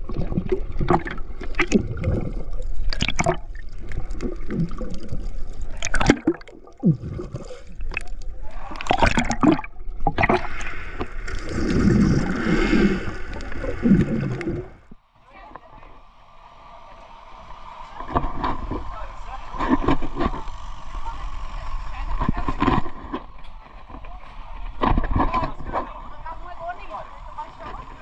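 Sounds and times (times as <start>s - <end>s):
bubbles rushing underwater: 0.0s - 14.9s
splashes: 0.0s - 15.0s, 17.8s - 23.9s
muffled water gurgling: 0.0s - 16.1s.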